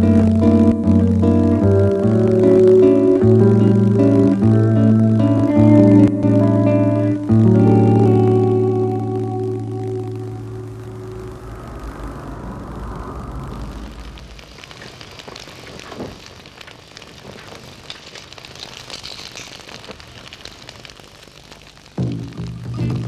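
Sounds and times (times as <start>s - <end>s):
music with low held tones: 0.0s - 12.3s, 22.0s - 23.0s
hissing crackling noise: 0.0s - 23.0s
low rumble: 9.8s - 15.9s.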